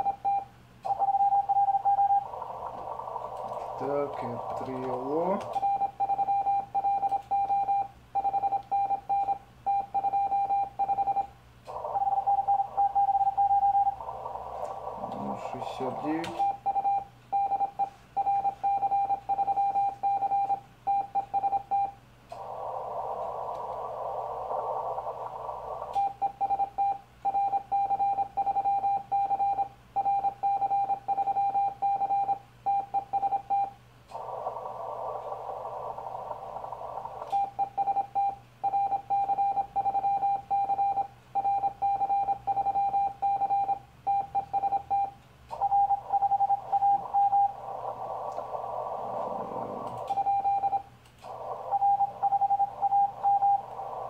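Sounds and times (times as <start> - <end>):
radio receiver hiss: 0.9 - 5.8, 11.6 - 16.8, 21.4 - 26.4, 33.3 - 38.1, 45.5 - 54.0.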